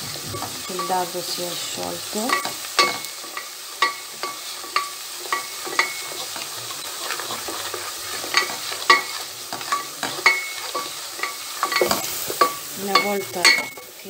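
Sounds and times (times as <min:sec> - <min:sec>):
steady sizzle: 0:00.0 - 0:14.0
wooden spoon knocking pot: 0:08.3 - 0:13.9.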